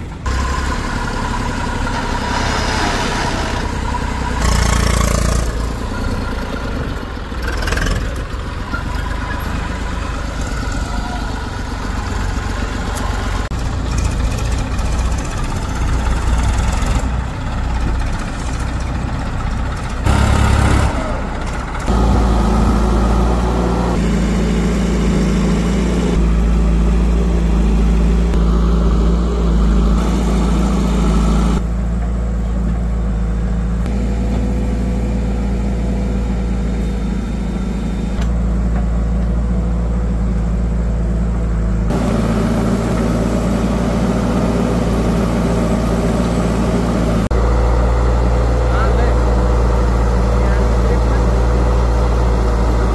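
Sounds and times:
diesel machinery engines running: 0.0s - 52.9s.

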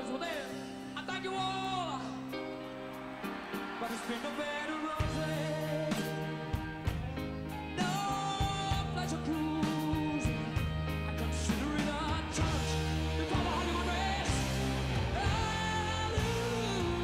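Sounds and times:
drums: 0.0s - 17.0s
song with singing voice: 0.0s - 17.0s
bass line: 5.0s - 17.0s.

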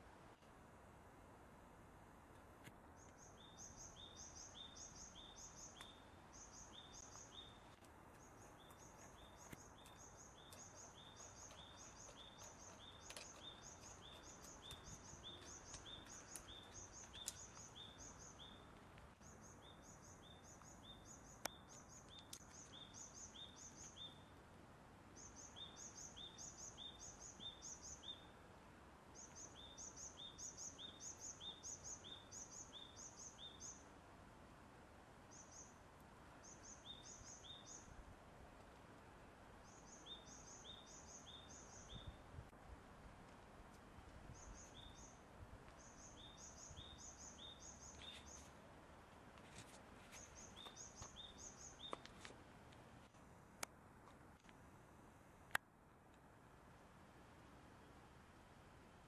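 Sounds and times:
faint high chirping calls: 2.9s - 24.4s, 25.1s - 28.5s, 29.1s - 33.9s, 35.2s - 38.0s, 39.6s - 42.4s, 44.2s - 48.7s, 49.5s - 52.3s
faint clicks: 7.0s - 17.8s.

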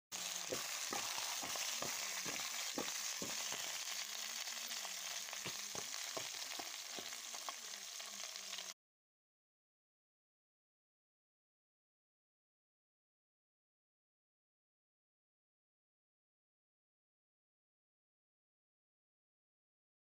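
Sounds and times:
potatoes and onions frying in oil: 0.1s - 8.8s.

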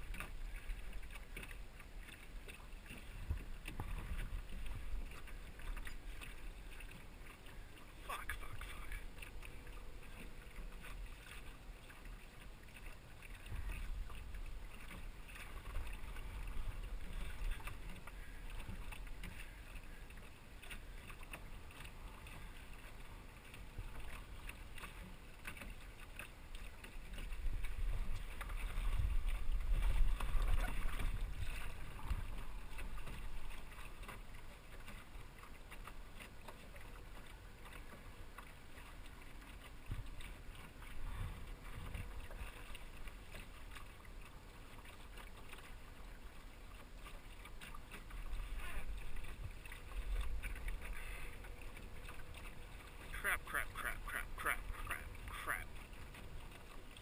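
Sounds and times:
water lapping against hull: 0.0s - 57.0s.

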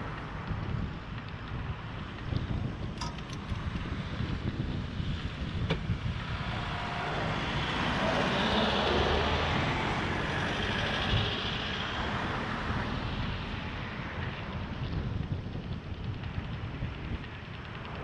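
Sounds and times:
vehicles driving past: 0.0s - 18.0s
wind on microphone: 0.0s - 18.0s.

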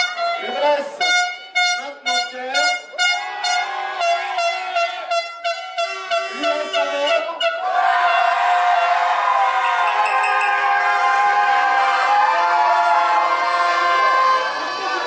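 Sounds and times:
horns tooting: 0.0s - 11.6s.

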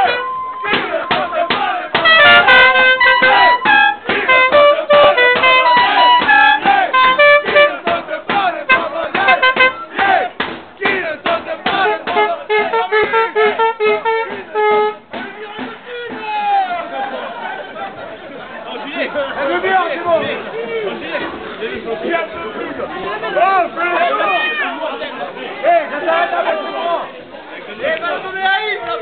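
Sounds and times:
trumpet playing fast tune: 0.0s - 7.9s, 8.6s - 9.9s, 11.8s - 15.0s
crowd shouting and chanting: 0.0s - 29.0s.

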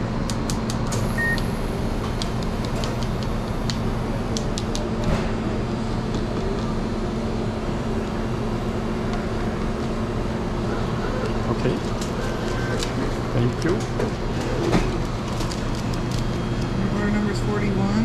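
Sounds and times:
kitchen equipment and ventilation hum: 0.0s - 18.0s
short electronic beep: 1.2s - 1.4s.

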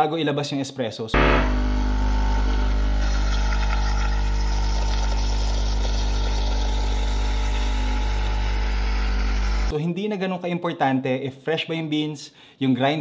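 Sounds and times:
espresso machine pump humming: 1.2s - 9.7s.

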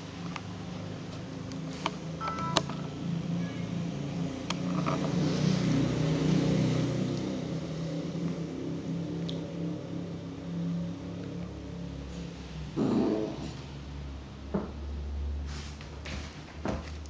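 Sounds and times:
dogs growling: 12.8s - 13.6s.

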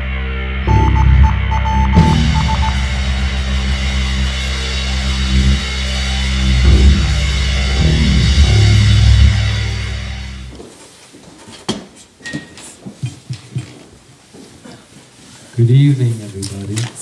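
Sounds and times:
heavy rock music: 0.0s - 10.5s.

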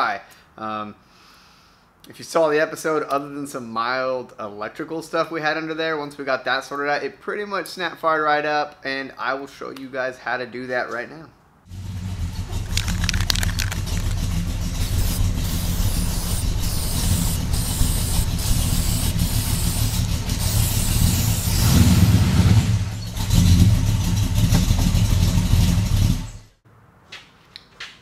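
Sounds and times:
car engine idling: 11.7s - 21.7s.

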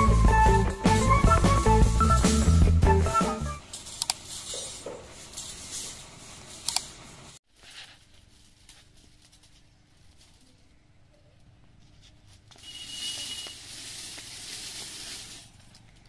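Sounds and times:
metal wire clinking and scraping: 3.6s - 10.7s, 12.2s - 16.0s
wire mesh roll rustling: 3.6s - 10.9s, 11.7s - 16.0s.

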